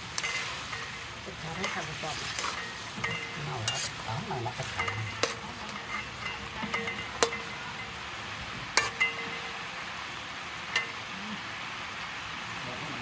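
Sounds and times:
metal spatula clacking against pan: 0:00.0 - 0:09.7, 0:10.7 - 0:11.1
stir-fry sizzling in a wok: 0:00.0 - 0:13.0.

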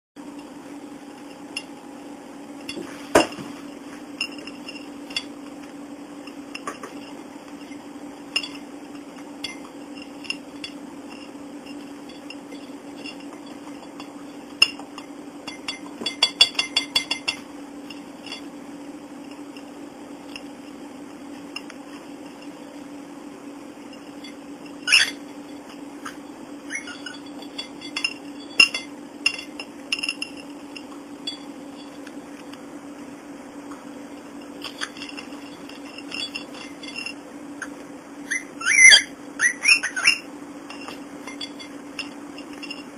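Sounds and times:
steady low hum: 0:00.2 - 0:42.9
toy beads clinking on china plate: 0:26.7 - 0:32.1, 0:34.6 - 0:37.2.

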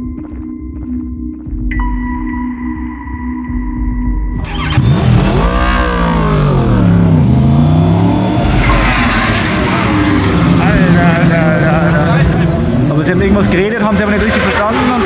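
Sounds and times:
background music: 0:00.0 - 0:15.0
racing motorcycle engines: 0:04.4 - 0:15.0.

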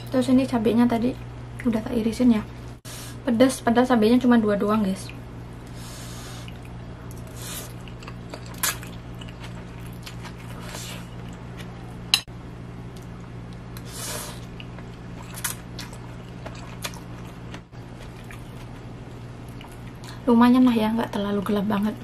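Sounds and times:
low electric hum: 0:00.0 - 0:22.0
person chewing: 0:05.7 - 0:11.8, 0:13.8 - 0:20.2
person slurping noodles: 0:13.8 - 0:14.5.

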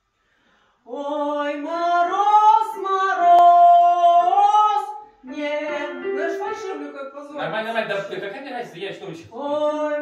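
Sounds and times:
woman singing wordless notes: 0:00.9 - 0:07.2, 0:09.3 - 0:10.0.

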